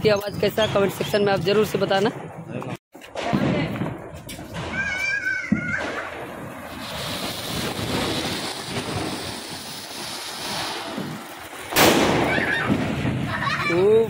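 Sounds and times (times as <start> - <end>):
firework crack: 3.0 - 14.0
firework fountain hissing: 4.2 - 14.0.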